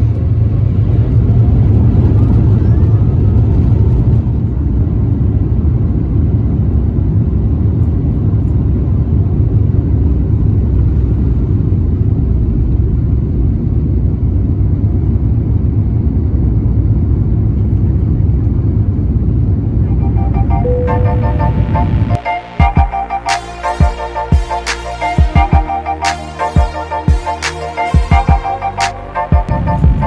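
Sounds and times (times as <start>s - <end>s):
jet engines deep rumble: 0.0s - 22.3s.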